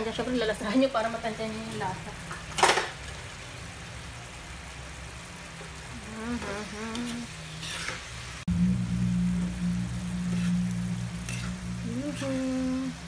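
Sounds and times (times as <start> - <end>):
person speaking: 6.0 - 7.3, 11.8 - 13.0
metal spatula scraping a pan: 7.5 - 8.3, 10.0 - 12.6
steady low hum: 8.4 - 13.0.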